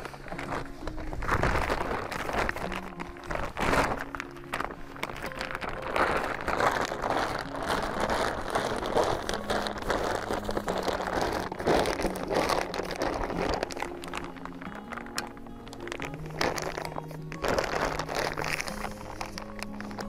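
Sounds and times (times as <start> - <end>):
plastic sheeting crinkling: 0.0 - 20.0.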